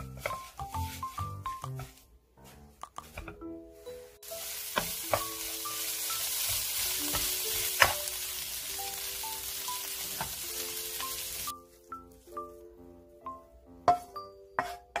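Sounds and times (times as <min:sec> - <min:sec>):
background music sustained notes: 0:00.0 - 0:15.0
greens sizzling in a frying pan: 0:04.2 - 0:11.5
wooden spatula knocking on pan: 0:04.7 - 0:05.4, 0:06.5 - 0:08.0.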